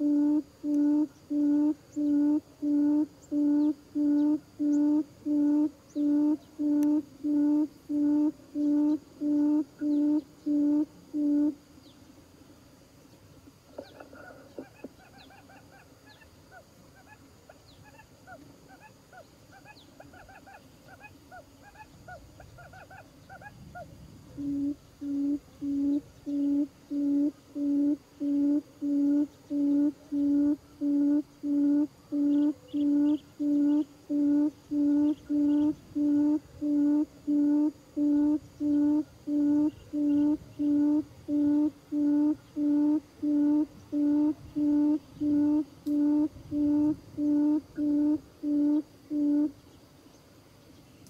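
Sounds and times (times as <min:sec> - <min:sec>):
bird hooting from loudspeaker: 0:00.0 - 0:11.6, 0:24.4 - 0:49.5.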